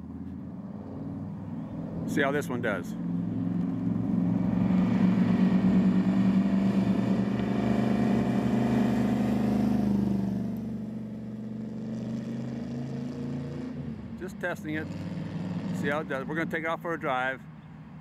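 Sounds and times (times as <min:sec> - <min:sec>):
car engine running: 0:00.0 - 0:11.8.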